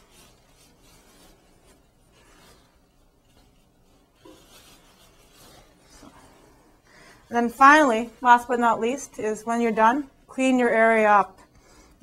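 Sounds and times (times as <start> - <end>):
cloth towel rustling and rubbing: 0.0 - 11.3.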